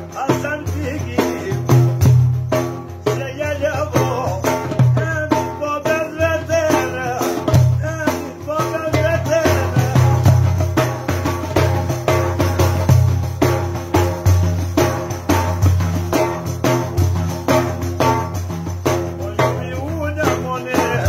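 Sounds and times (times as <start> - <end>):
man singing: 0.0 - 11.3, 18.8 - 21.0
frame drum thumps with jingles: 0.0 - 21.0.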